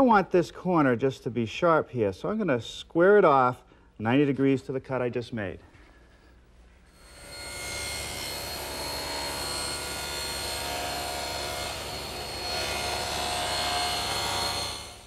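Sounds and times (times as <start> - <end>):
table saw motor whining: 7.0 - 15.0.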